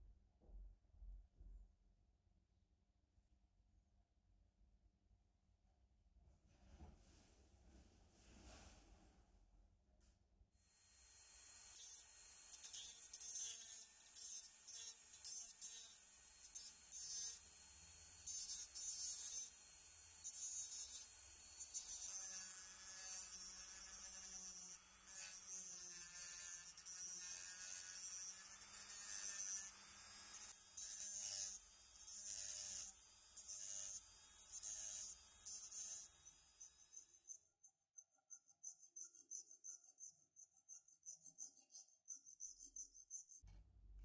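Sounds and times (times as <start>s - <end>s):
rotary tool motor whine: 10.7s - 37.5s.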